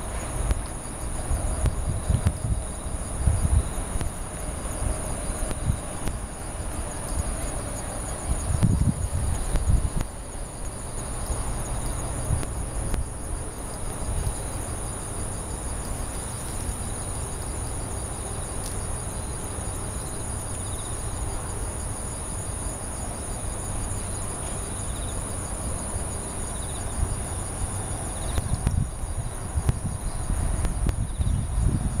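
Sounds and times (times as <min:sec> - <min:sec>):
insects trilling: 0:00.0 - 0:32.0.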